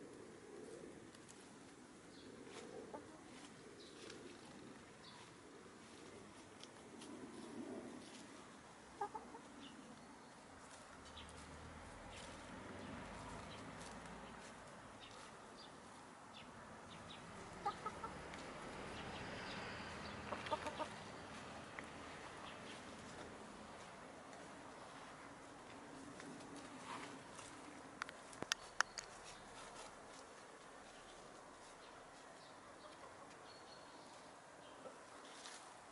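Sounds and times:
hens clucking: 2.5s - 3.5s, 9.0s - 9.7s, 17.4s - 18.5s, 20.0s - 21.2s.

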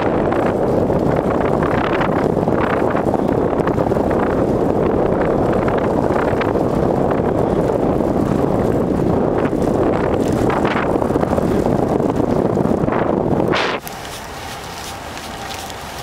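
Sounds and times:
wind rushing over microphone: 0.0s - 16.0s
tyres rustling over leaves: 5.3s - 16.0s.

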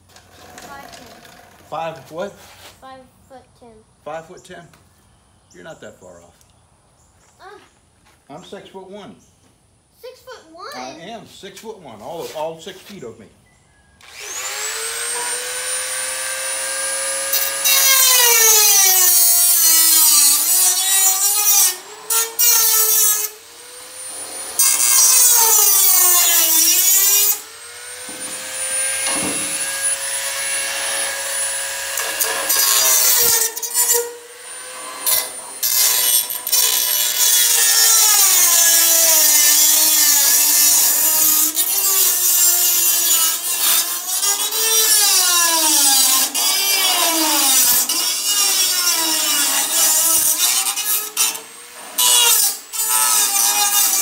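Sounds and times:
rotary tool cutting metal: 14.0s - 54.0s.

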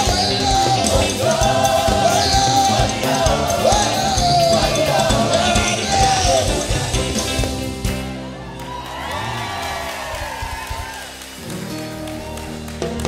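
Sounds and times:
choir singing: 0.0s - 7.7s
steady drum beat: 0.0s - 8.2s.

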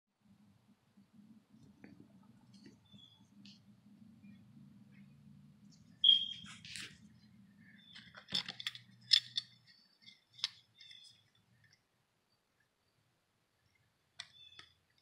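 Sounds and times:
faint low hum: 0.2s - 15.0s
brief squeak: 6.0s - 6.6s.

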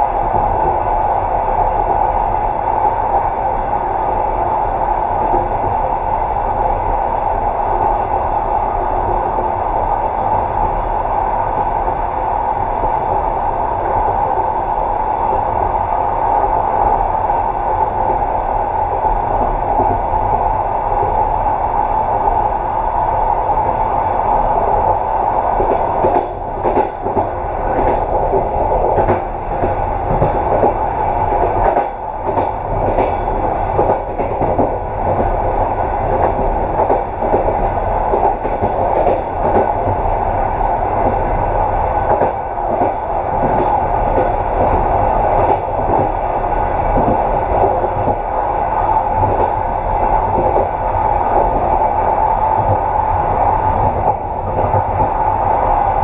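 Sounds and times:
train rumbling on track: 0.0s - 56.0s.

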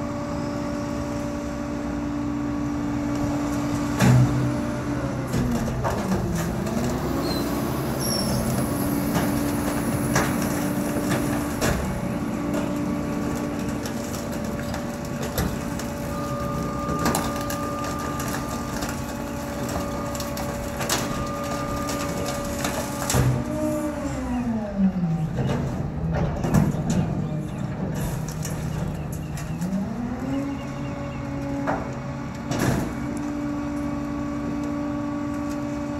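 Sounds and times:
garbage truck idling: 0.0s - 35.9s
knocks and clatters of debris: 3.9s - 4.6s, 5.2s - 7.4s, 8.0s - 24.5s, 25.2s - 30.4s, 31.5s - 33.4s.

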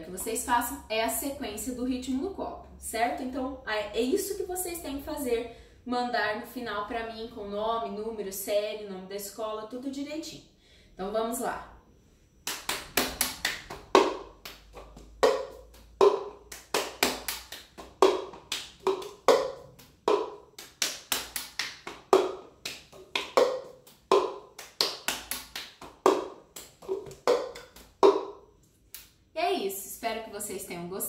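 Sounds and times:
hand claps: 12.4s - 28.3s
cup striking palm and counter: 13.9s - 20.4s, 21.9s - 28.4s.

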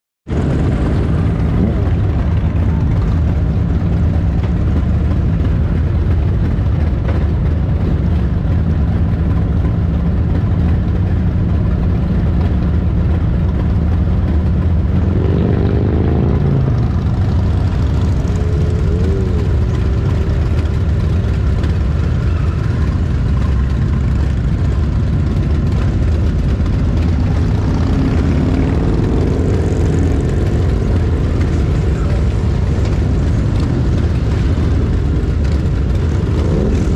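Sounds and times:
motorcycle engine idling: 0.3s - 36.9s
motorcycles accelerating past: 15.0s - 24.8s, 25.7s - 36.9s.

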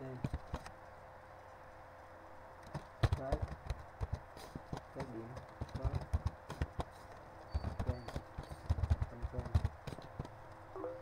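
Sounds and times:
computer keyboard typing: 7.5s - 10.0s.

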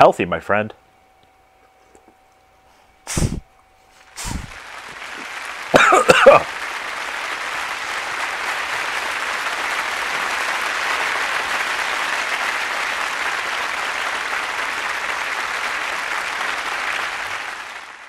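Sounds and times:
applause: 4.1s - 18.0s.

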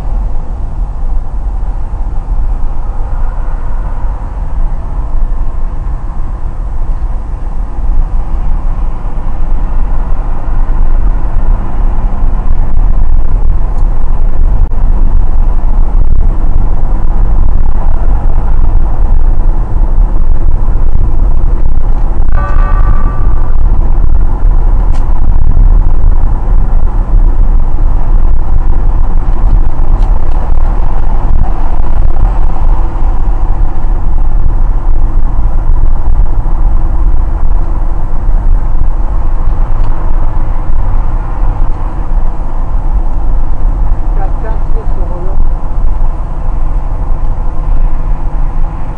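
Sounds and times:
car cabin road and engine noise: 0.0s - 48.9s
short pitched tone: 22.2s - 25.8s.

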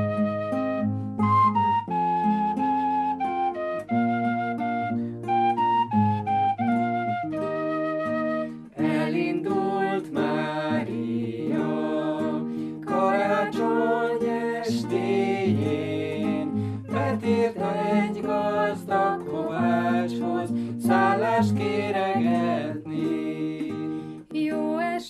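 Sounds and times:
acoustic guitar: 0.0s - 25.0s
person singing folk song: 8.4s - 25.0s.

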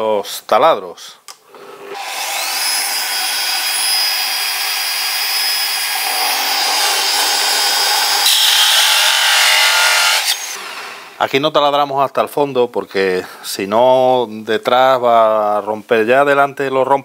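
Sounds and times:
electric drill motor whine: 1.5s - 11.1s
hole saw rasping through board: 1.6s - 11.0s.

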